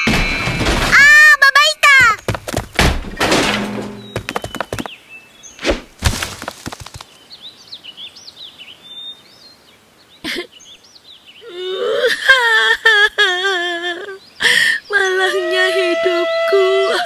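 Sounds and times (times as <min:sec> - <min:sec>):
birds chirping: 0:00.0 - 0:17.0
cartoon thuds: 0:01.9 - 0:04.9
cartoon character wailing: 0:15.2 - 0:17.0.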